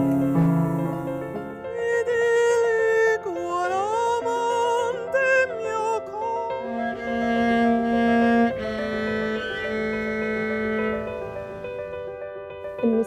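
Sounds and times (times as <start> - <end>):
low bowed cello notes: 0.0 - 1.7, 6.6 - 12.2
operatic soprano singing: 1.7 - 7.2.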